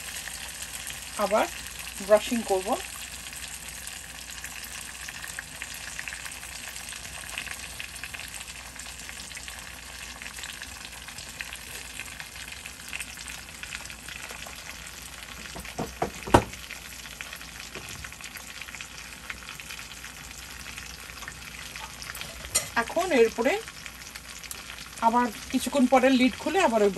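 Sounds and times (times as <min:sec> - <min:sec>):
chicken sizzling in oil: 0:00.0 - 0:26.9
knocks on a pan: 0:15.4 - 0:16.6.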